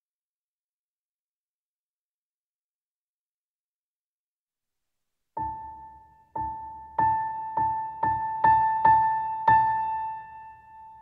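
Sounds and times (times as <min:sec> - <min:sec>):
piano music: 0:05.4 - 0:11.0.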